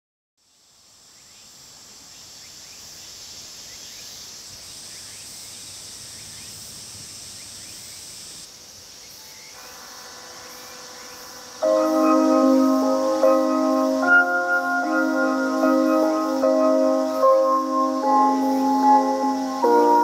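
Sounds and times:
cicadas buzzing: 0:00.4 - 0:20.0
faint steady tones: 0:09.0 - 0:20.0.

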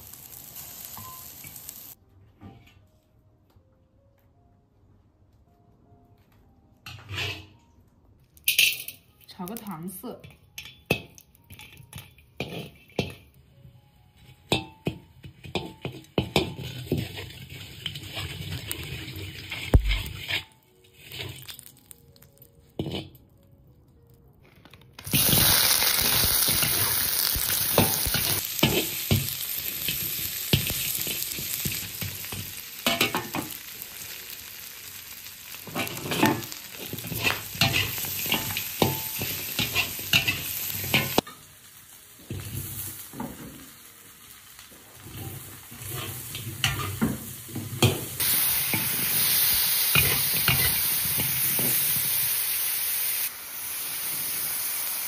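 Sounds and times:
ribs sizzling in hot oil: 0:00.0 - 0:02.0, 0:15.5 - 0:23.0, 0:25.0 - 0:55.0.

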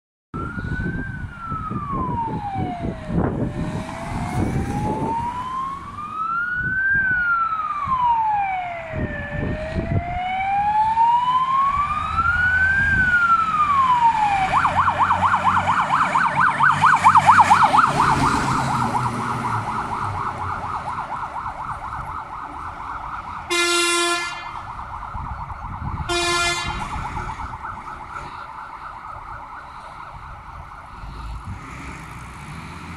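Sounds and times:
fire engine siren: 0:00.4 - 0:32.9
truck horn blasts: 0:23.5 - 0:24.5, 0:26.1 - 0:27.0.

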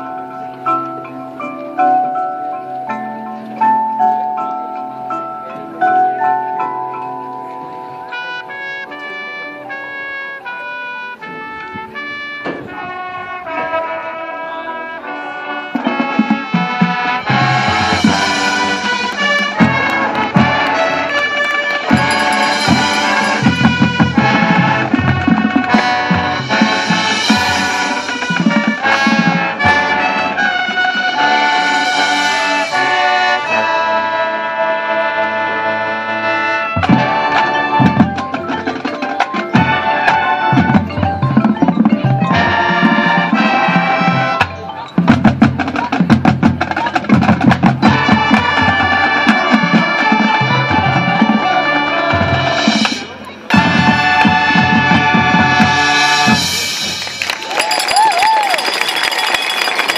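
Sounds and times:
marching band brass: 0:07.4 - 0:59.9
drumline percussion: 0:15.5 - 0:34.0, 0:36.7 - 0:59.9.

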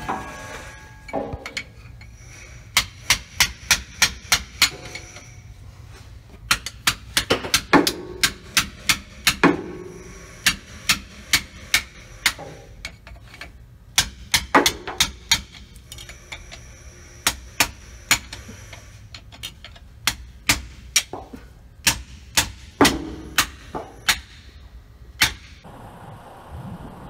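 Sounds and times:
hammer striking steel: 0:00.0 - 0:02.1, 0:02.7 - 0:05.4, 0:06.5 - 0:12.9, 0:13.9 - 0:15.7, 0:20.0 - 0:24.5, 0:25.2 - 0:25.6.

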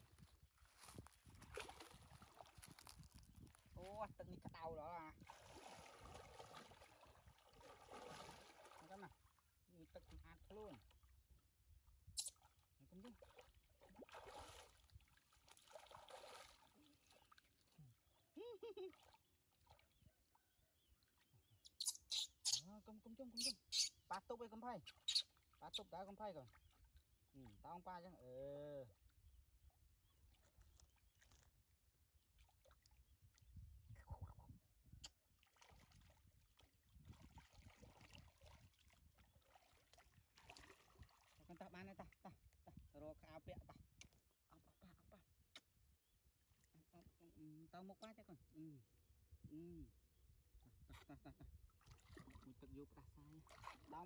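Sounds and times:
water splashing and sloshing: 0:00.0 - 0:04.0, 0:05.1 - 0:11.3, 0:12.3 - 0:20.1, 0:30.2 - 0:34.5, 0:35.2 - 0:42.2, 0:51.7 - 0:54.0
small splashes of hands: 0:00.8 - 0:03.1, 0:13.2 - 0:17.5.

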